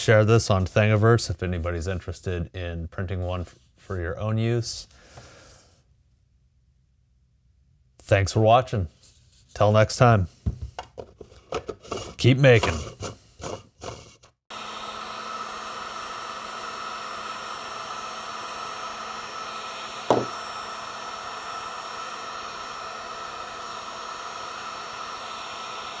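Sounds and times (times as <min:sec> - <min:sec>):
heat gun blowing hiss: 0:14.5 - 0:26.0
sharp knock: 0:20.1 - 0:20.4.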